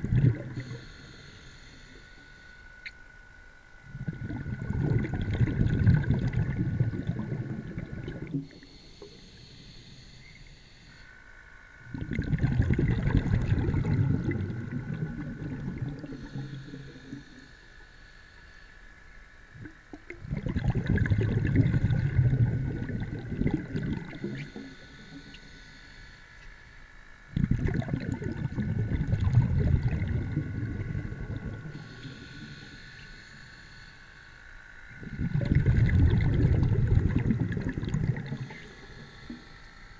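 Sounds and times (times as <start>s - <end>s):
low underwater rumbling: 0.0s - 0.8s, 3.8s - 8.6s, 11.8s - 17.4s, 19.5s - 25.4s, 27.0s - 32.9s, 34.6s - 39.9s.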